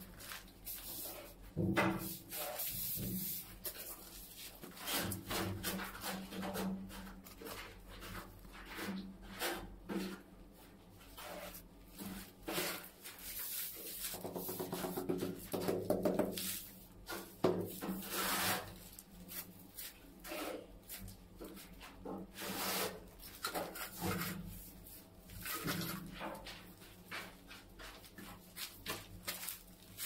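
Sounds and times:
trowel scraping tile adhesive: 17.9 - 18.7.

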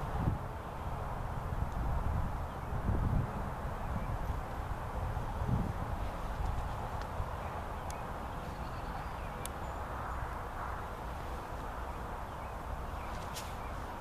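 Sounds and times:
wind buffeting microphone: 0.0 - 14.0
faint sharp clicks: 7.8 - 8.0, 9.4 - 9.6.

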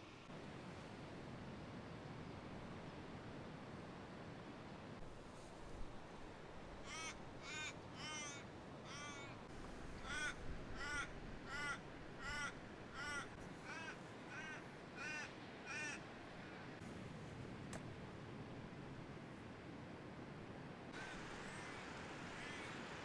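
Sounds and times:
bird cawing: 6.8 - 16.1, 21.0 - 22.9.

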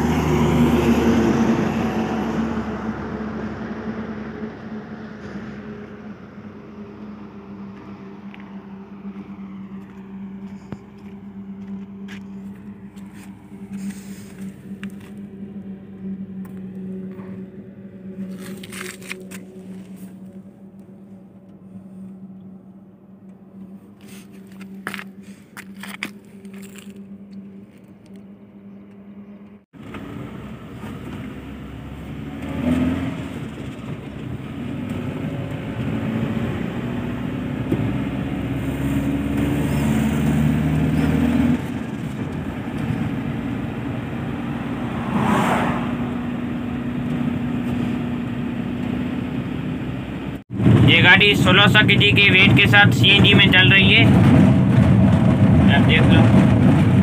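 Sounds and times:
pickup driving: 0.0 - 57.0
brief clicks and scrapes: 18.2 - 20.2, 23.9 - 28.2.

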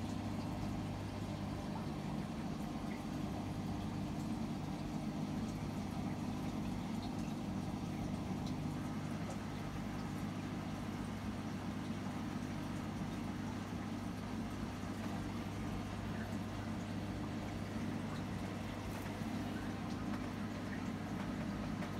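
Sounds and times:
low mechanical hum: 0.0 - 21.9.

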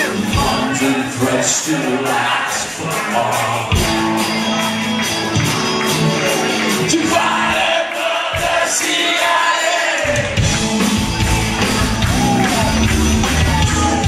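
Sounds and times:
man singing: 0.0 - 3.9, 6.8 - 10.5
live rock band: 0.0 - 14.0.

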